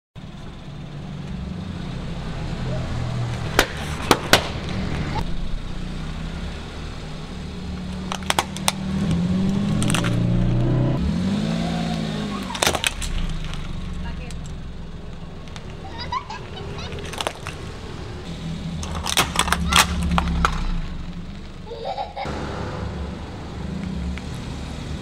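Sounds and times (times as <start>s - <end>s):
car engine running: 0.2s - 25.0s
plastic toy cracking: 18.8s - 20.6s.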